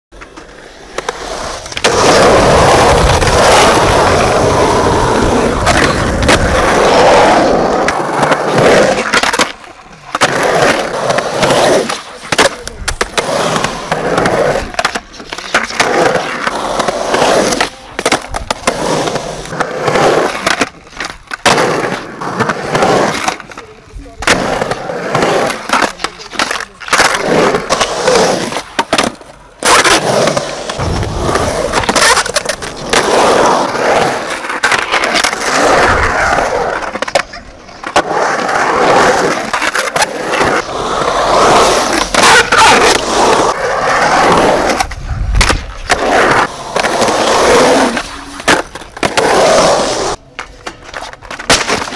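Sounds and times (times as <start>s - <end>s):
skateboard clacking and landing: 0.1s - 51.9s
skateboard wheels rolling on concrete: 0.1s - 51.9s.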